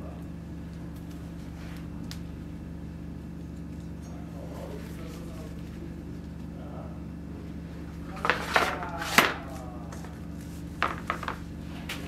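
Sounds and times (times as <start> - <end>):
sharp wooden knocks: 10.8 - 11.4.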